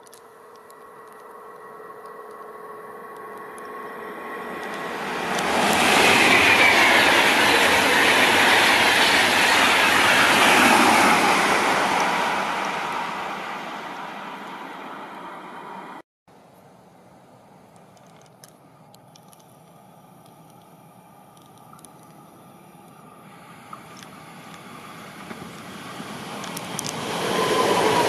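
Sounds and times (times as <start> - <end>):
train passing at speed: 0.0 - 16.0, 22.8 - 28.0
wheel and rail noise: 0.0 - 28.0.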